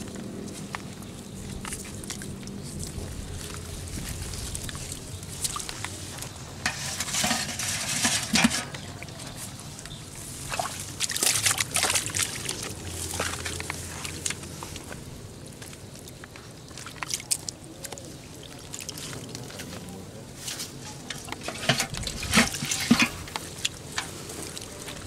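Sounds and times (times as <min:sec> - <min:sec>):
water splashing and sloshing: 0:00.0 - 0:25.0
water pouring into bucket: 0:10.5 - 0:13.7.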